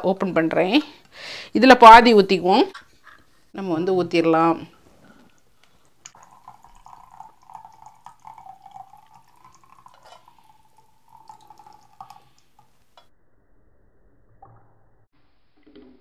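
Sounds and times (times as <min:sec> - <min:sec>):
drips and plops: 0:05.1 - 0:13.0
thick pulp pouring into jug: 0:06.1 - 0:12.4.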